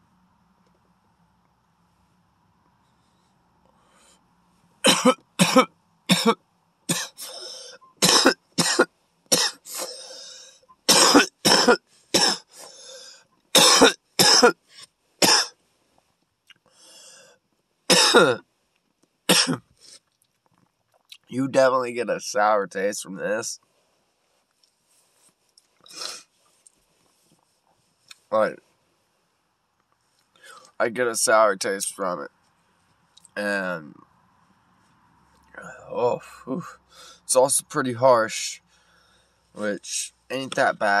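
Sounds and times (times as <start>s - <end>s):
man coughing: 4.8s - 7.4s, 8.0s - 10.2s, 10.9s - 12.7s, 13.6s - 14.6s, 15.2s - 15.5s, 17.9s - 18.4s, 19.3s - 19.6s.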